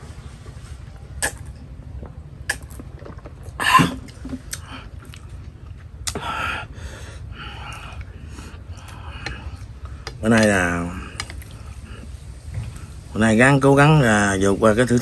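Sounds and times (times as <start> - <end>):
man coughing: 3.6 - 4.1
breathy exhale: 6.2 - 9.6.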